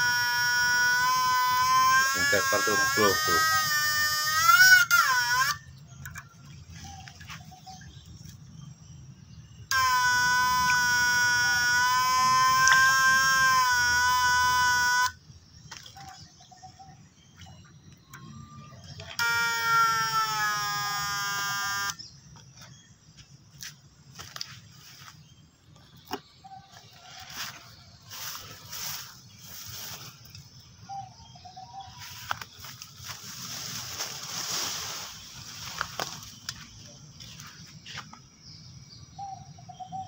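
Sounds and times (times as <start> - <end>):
electric fish stunner buzzing: 0.0 - 5.6, 9.7 - 15.2, 19.0 - 22.0.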